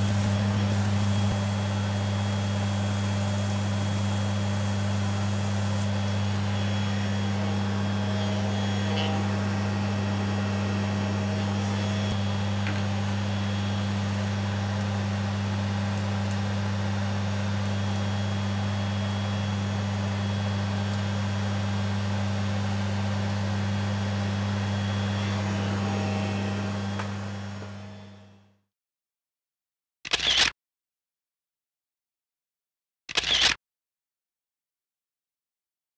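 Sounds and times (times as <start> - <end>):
electric machine hum with air rush: 0.0 - 28.6.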